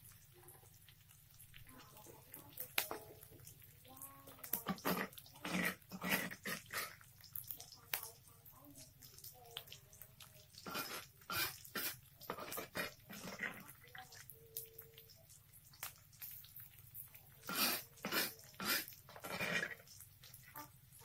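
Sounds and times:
spatula scraping a wok: 0:04.7 - 0:07.1, 0:10.6 - 0:13.8, 0:17.4 - 0:20.4.

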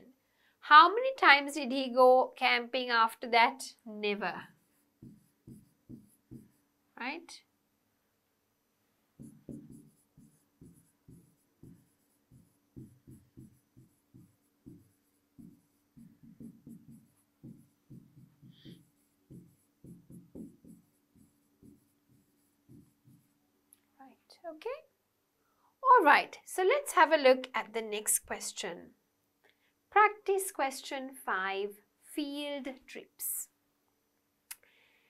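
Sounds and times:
stylus tapping and scraping on screen: 0:04.4 - 0:06.6, 0:09.2 - 0:23.9.

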